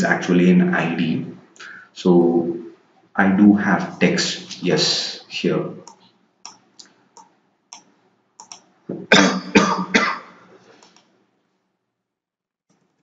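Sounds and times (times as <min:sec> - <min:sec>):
computer mouse clicks: 0:05.8 - 0:08.7, 0:10.8 - 0:11.1
person coughing: 0:09.0 - 0:10.4.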